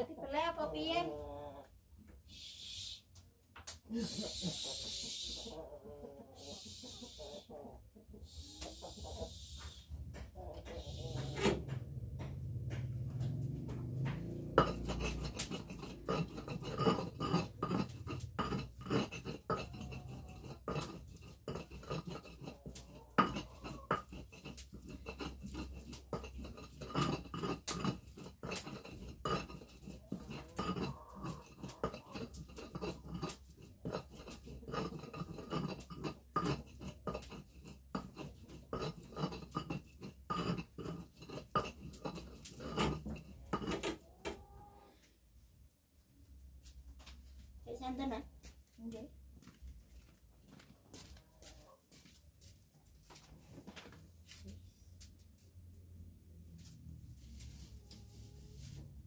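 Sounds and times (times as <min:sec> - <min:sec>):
stone pestle grinding in mortar: 0:10.1 - 0:44.1
stone knocking on stone: 0:13.7 - 0:22.5, 0:23.2 - 0:44.0.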